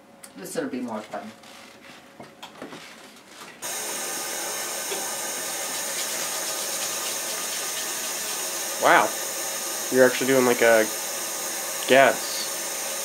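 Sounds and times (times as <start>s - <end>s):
compressed gas hissing: 3.6s - 13.0s.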